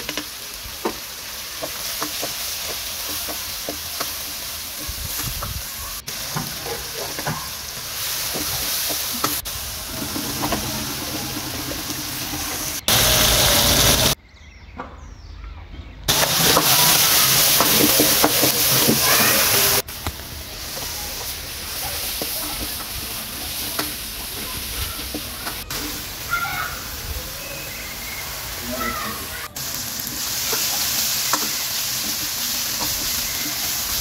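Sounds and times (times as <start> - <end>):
vegetables sizzling in hot oil: 0.0 - 14.2, 16.1 - 34.0.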